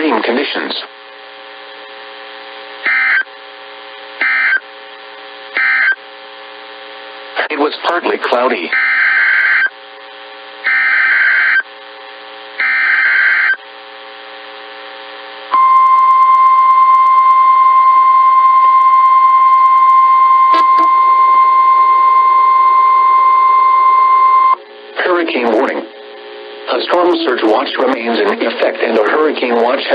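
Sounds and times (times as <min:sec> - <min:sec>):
steady warning alarm tone: 0:02.8 - 0:03.3, 0:04.2 - 0:04.6, 0:05.6 - 0:06.0, 0:08.7 - 0:09.7, 0:10.6 - 0:11.6, 0:12.6 - 0:13.6, 0:15.5 - 0:24.6.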